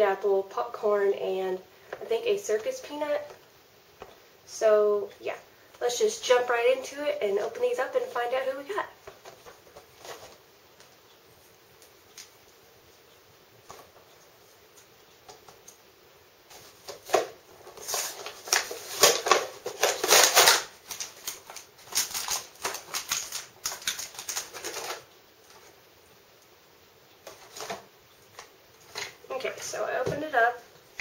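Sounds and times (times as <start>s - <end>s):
plastic packaging crinkling: 8.9s - 10.5s, 16.5s - 25.8s, 27.2s - 29.2s.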